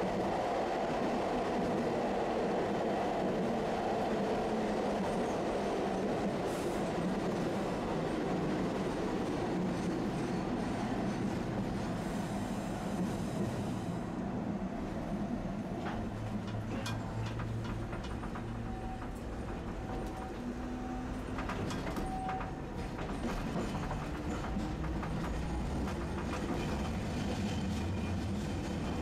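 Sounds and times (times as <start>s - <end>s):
wheels rumbling on rails: 15.4s - 29.0s.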